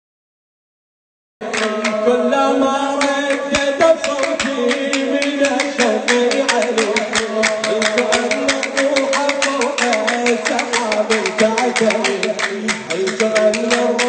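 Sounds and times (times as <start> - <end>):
man chanting into a microphone: 1.4 - 14.0
fast beat of sharp strikes: 3.0 - 14.0.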